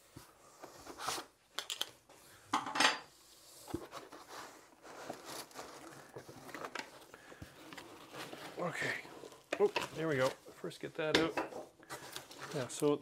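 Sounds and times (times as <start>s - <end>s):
foam packing rustling: 3.7s - 11.1s, 11.8s - 13.0s.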